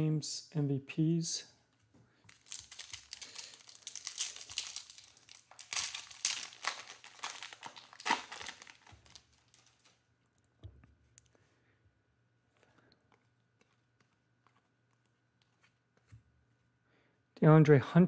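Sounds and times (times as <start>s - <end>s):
foil wrapper crackling: 2.3s - 10.0s.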